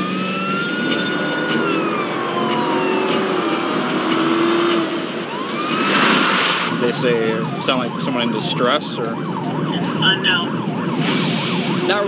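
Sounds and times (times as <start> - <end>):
car road noise: 0.0 - 12.0
police siren wailing: 0.0 - 12.0.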